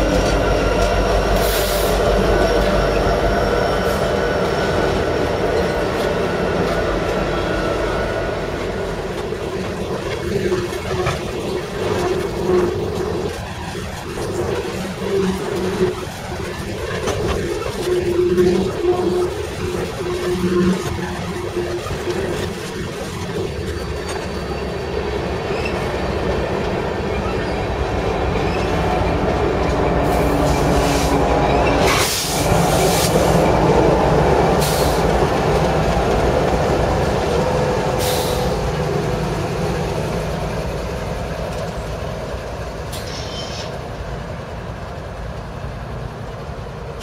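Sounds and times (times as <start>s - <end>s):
diesel locomotive passing: 0.0s - 47.0s
train cars rolling past: 0.0s - 47.0s
wheel squeal: 17.0s - 26.0s, 43.0s - 43.8s.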